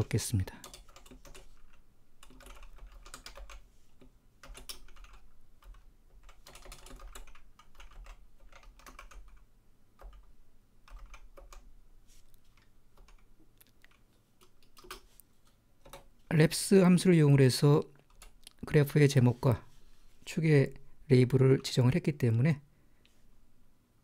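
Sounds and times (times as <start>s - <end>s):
typing on keyboard: 0.6s - 11.7s, 12.5s - 15.1s, 18.0s - 18.4s.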